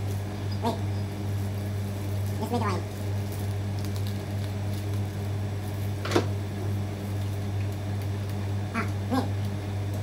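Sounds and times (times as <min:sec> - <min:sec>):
steady low hum: 0:00.0 - 0:10.0
kettle set down on table: 0:06.0 - 0:06.3.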